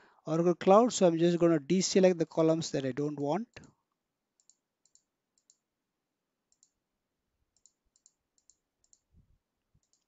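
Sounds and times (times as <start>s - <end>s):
computer mouse clicks: 4.4s - 5.7s, 6.5s - 6.8s, 7.5s - 9.1s, 9.8s - 10.0s.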